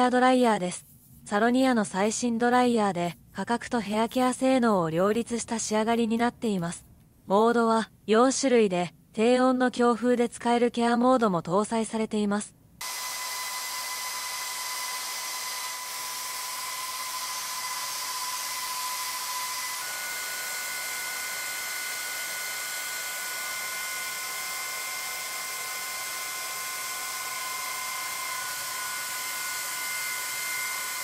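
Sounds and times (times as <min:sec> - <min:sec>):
hair dryer blowing: 0:12.8 - 0:31.0.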